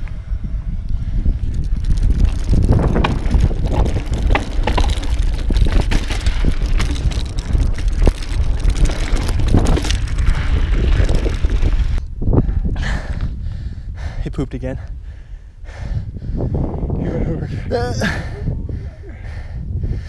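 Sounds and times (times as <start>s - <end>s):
wind rumble on microphone: 0.0s - 20.0s
bike clicking and rattling: 0.9s - 12.1s
tyres crunching on dirt: 1.4s - 12.0s.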